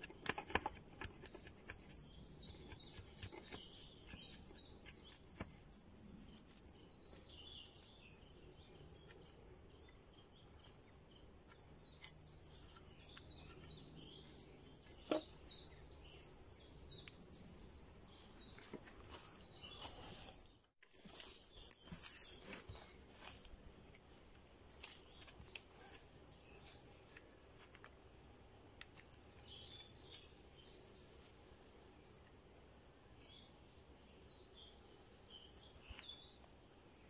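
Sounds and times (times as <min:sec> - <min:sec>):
birds chirping: 0:00.0 - 0:23.4.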